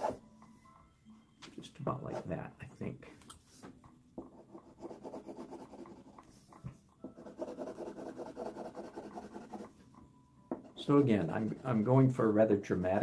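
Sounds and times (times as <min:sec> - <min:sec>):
pencil scratching on paper: 0:04.3 - 0:06.5, 0:07.2 - 0:09.8, 0:10.8 - 0:11.9.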